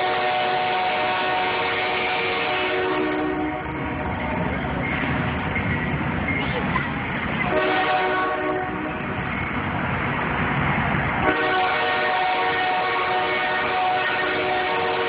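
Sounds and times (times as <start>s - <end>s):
train horn: 0.0s - 3.9s, 7.4s - 9.0s, 11.2s - 15.0s
rumble of passing railcars: 0.0s - 15.0s.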